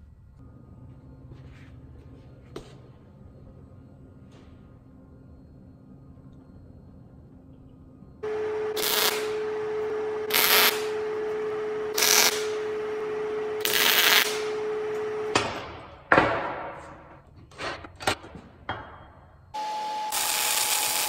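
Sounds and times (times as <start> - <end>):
welder crackling sizzle: 8.3 - 11.0, 11.9 - 12.6, 13.6 - 14.6, 19.6 - 21.0.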